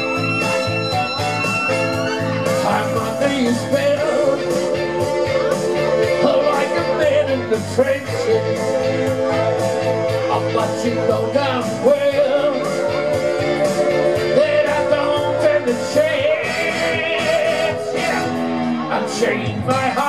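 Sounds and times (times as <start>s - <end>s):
live rock band playing: 0.0s - 20.0s
wavering lead guitar line: 0.0s - 20.0s.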